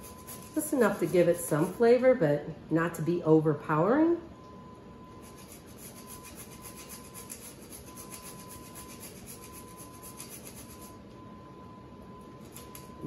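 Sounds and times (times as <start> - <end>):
nutmeg scraping on grater: 0.0 - 1.8, 5.2 - 11.0.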